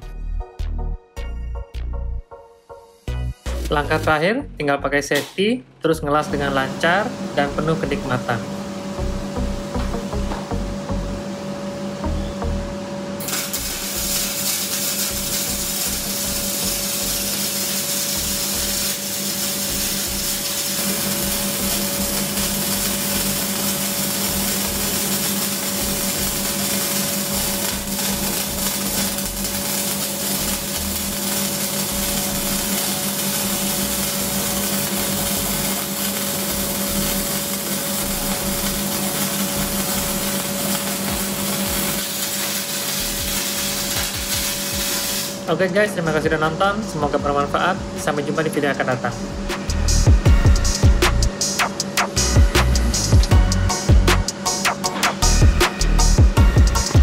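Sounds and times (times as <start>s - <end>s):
steady hum: 5.4s - 57.0s
welding arc crackling: 13.2s - 57.0s.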